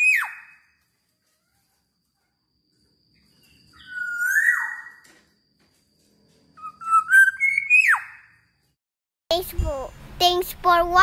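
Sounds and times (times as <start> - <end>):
bird whistling: 0.0 - 0.6, 3.5 - 5.0, 6.6 - 8.4.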